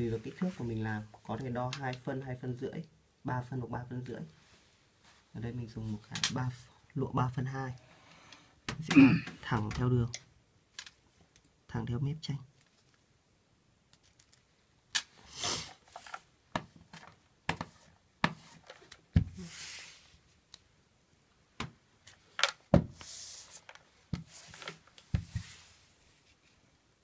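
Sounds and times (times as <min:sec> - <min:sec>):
paper rustling: 0:15.6 - 0:16.3, 0:23.1 - 0:26.6.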